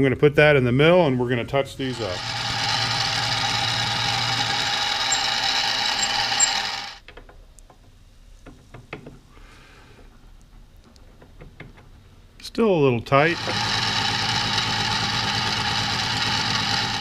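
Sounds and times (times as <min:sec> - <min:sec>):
milling machine motor whine: 0:01.8 - 0:07.0, 0:13.3 - 0:17.0.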